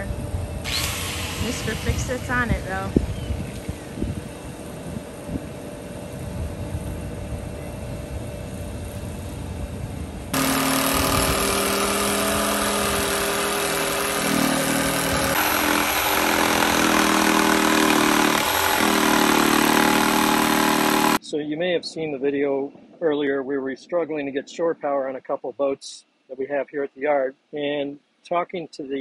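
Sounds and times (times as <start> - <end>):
jigsaw cutting wood: 0.6 - 2.8, 10.4 - 21.2.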